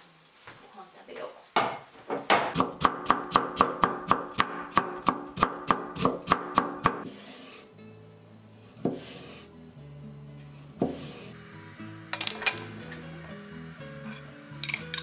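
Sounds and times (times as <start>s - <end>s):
knife chopping on wooden board: 1.6s - 7.0s, 8.8s - 9.1s, 10.8s - 11.2s
soft background music: 5.7s - 15.0s
knife slicing tomato: 8.8s - 9.4s, 10.8s - 11.3s.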